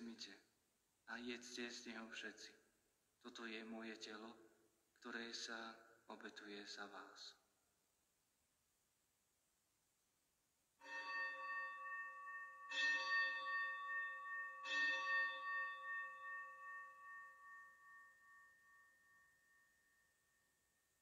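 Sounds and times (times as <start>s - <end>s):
bell ringing: 10.8s - 20.5s.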